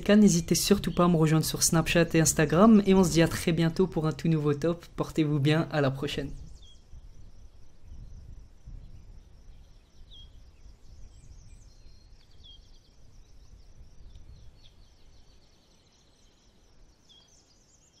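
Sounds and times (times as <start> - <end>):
birds chirping: 0.0 - 8.2.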